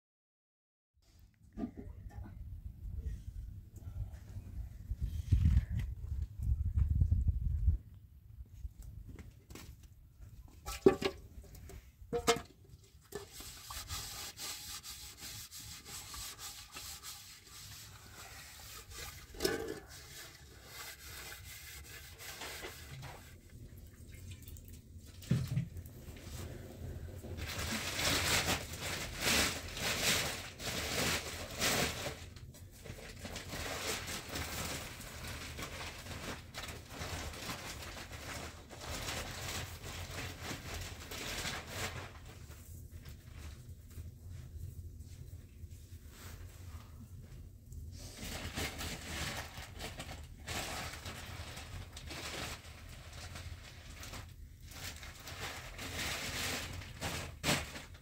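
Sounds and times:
knocks and clatters: 0:10.6 - 0:13.2
rhythmic rubbing and scraping: 0:13.1 - 0:23.3.

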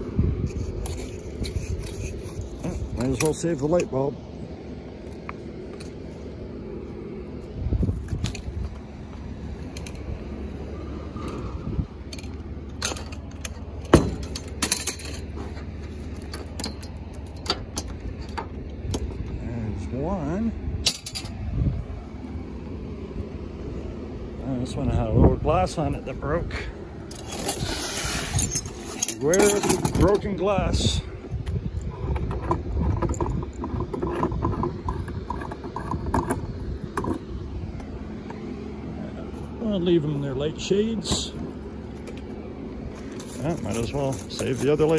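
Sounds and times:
low handling rumble: 0:00.0 - 0:44.9
metal clanking and clinking: 0:11.1 - 0:19.4, 0:20.8 - 0:21.4, 0:27.0 - 0:30.5, 0:31.8 - 0:37.2, 0:43.1 - 0:44.9
metal lamp parts clicking: 0:28.4 - 0:30.3.

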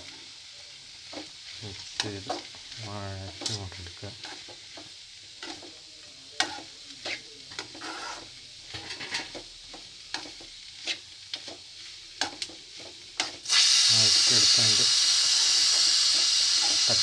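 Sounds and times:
onions sizzling in oil: 0:00.0 - 0:17.0
metal spoon scraping pan: 0:06.4 - 0:09.4.

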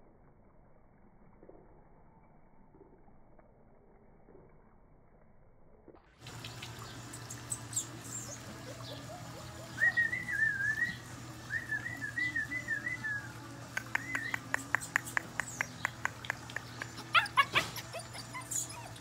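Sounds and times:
puppy whining: 0:07.7 - 0:11.0, 0:14.2 - 0:19.0.

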